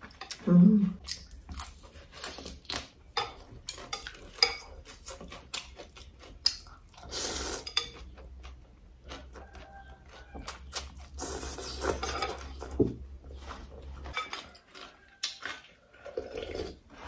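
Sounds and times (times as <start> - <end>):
noodles slurped: 15.6 - 17.0.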